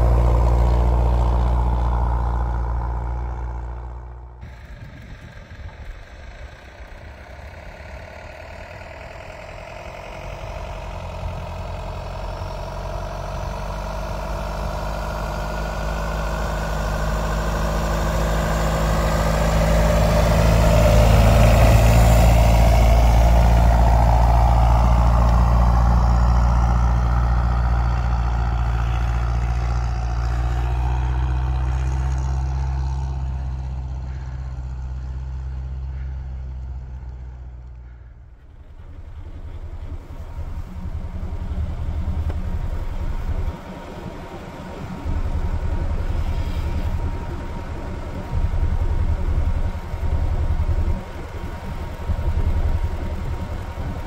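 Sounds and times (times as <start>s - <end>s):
snow vehicle engine passing: 0.0s - 54.0s.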